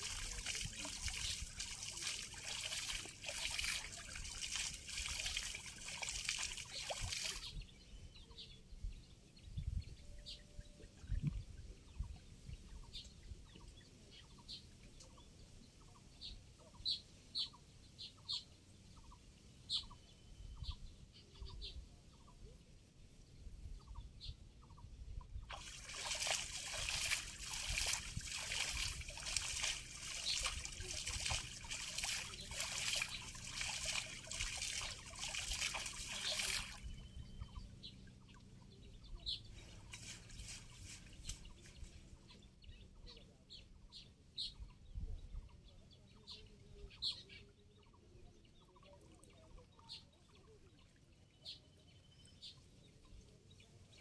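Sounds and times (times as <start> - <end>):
water splashing and trickling: 0.0 - 7.8, 25.4 - 42.1
high bird chirps: 25.9 - 37.7.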